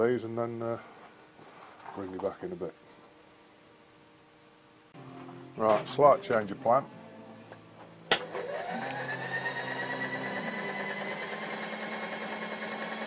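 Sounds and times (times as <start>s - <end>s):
milling machine motor whining: 8.2s - 13.0s.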